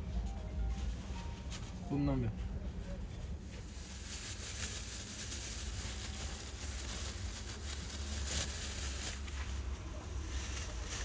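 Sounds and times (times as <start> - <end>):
low steady hum: 0.0 - 11.0
plastic bag crinkling: 3.3 - 11.0.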